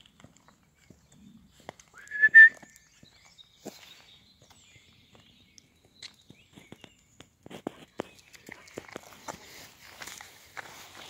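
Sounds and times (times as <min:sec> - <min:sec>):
footsteps on gravel: 0:00.0 - 0:11.0
two-note whistle: 0:02.0 - 0:02.6.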